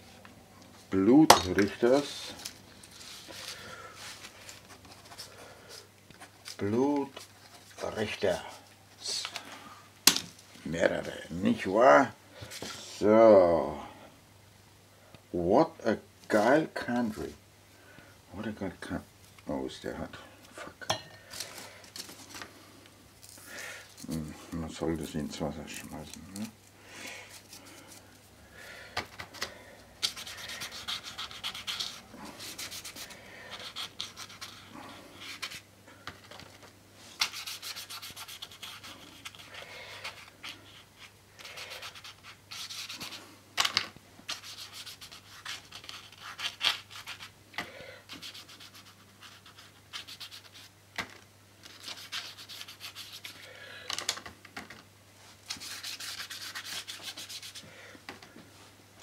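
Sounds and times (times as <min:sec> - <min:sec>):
faint steady hum: 0:00.0 - 0:59.0
paintbrush scraping on card: 0:30.0 - 0:35.6, 0:37.2 - 0:43.2, 0:44.3 - 0:47.3, 0:48.1 - 0:50.7, 0:51.7 - 0:53.5, 0:55.5 - 0:57.6.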